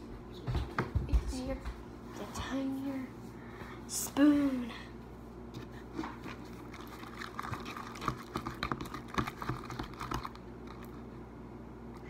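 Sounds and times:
spoon stirring wet slime: 0:05.6 - 0:11.1.

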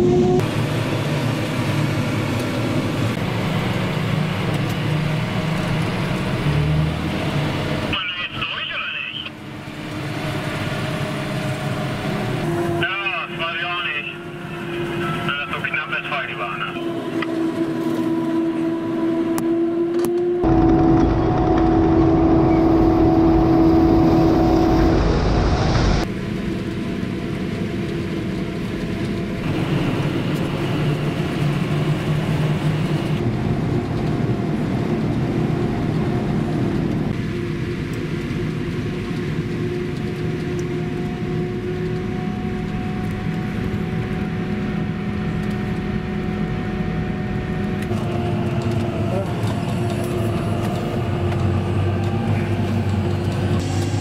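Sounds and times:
forage harvester engine drone: 0:00.0 - 0:54.0.

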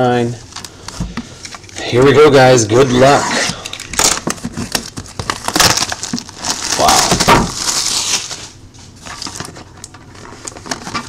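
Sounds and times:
plastic shrink wrap crinkling and tearing: 0:00.4 - 0:01.0, 0:02.8 - 0:11.0.

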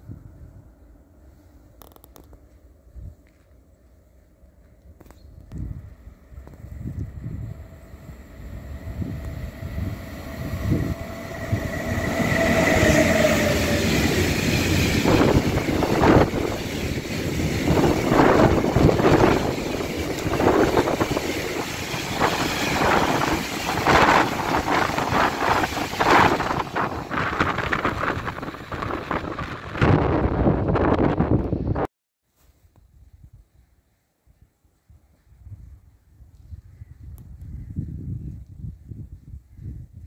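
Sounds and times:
electric locomotive whine: 0:02.5 - 0:31.9
train wheels clattering on rails: 0:10.9 - 0:29.9.

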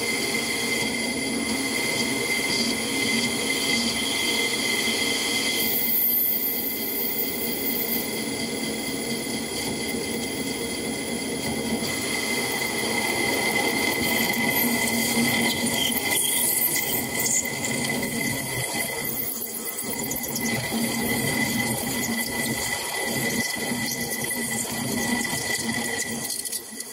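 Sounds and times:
lathe cutting high whine: 0:00.0 - 0:26.9.

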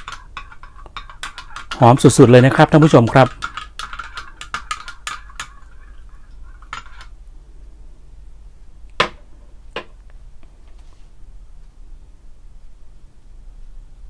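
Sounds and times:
metal spoon clinking against glass: 0:00.0 - 0:07.1.

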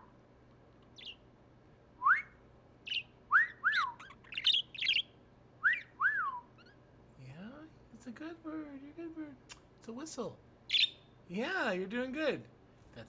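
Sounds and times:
parakeet chirping: 0:00.9 - 0:01.3, 0:02.8 - 0:06.9, 0:10.7 - 0:11.2
man whistling: 0:02.0 - 0:02.3, 0:05.6 - 0:06.5.

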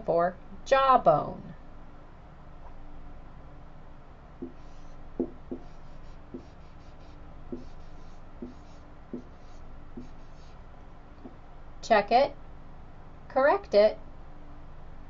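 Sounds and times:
marker writing on whiteboard: 0:04.4 - 0:10.6.

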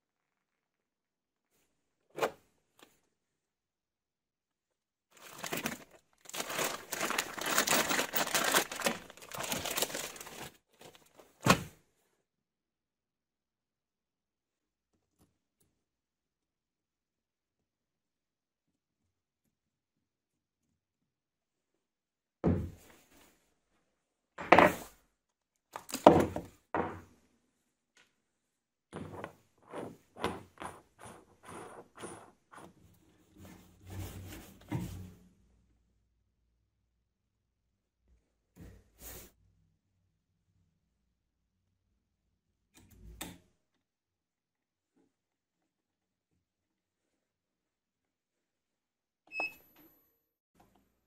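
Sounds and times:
plastic packaging crinkling: 0:05.2 - 0:11.1.

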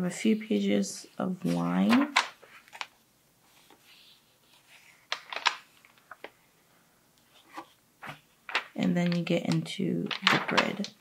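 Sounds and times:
notebook pages turning: 0:01.4 - 0:03.0, 0:03.6 - 0:06.4, 0:07.4 - 0:11.0.

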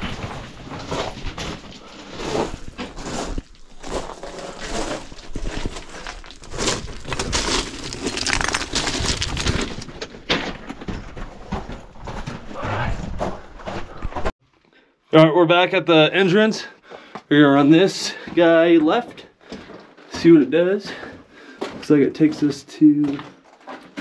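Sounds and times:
footsteps crunching on rock and sand: 0:00.0 - 0:14.3.

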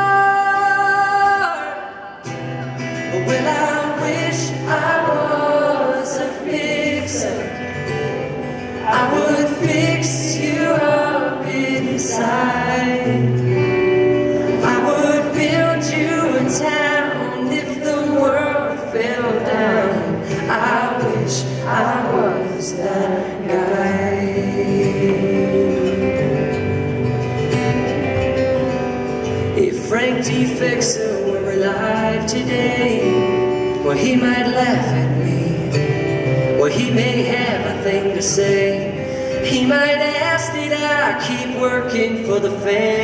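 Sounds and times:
voices singing harmony: 0:00.0 - 0:26.5
man singing: 0:00.0 - 0:26.8, 0:29.3 - 0:43.0
acoustic guitar: 0:00.0 - 0:43.0.

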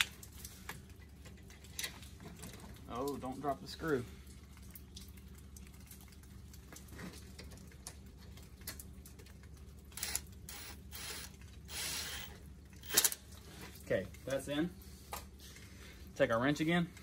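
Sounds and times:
cordless ratchet whirring: 0:10.0 - 0:13.2.

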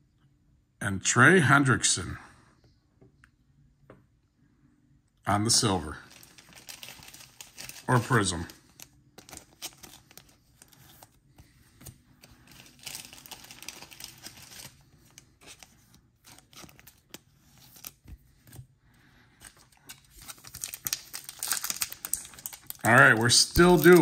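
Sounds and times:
cards and plastic sleeve rustling: 0:05.6 - 0:24.0.

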